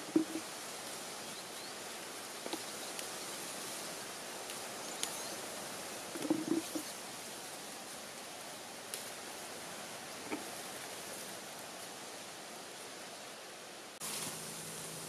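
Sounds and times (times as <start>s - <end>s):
leaves and branches rustling: 0.0s - 15.0s
steady outdoor hiss: 0.0s - 15.0s
soft knocks: 0.1s - 0.4s.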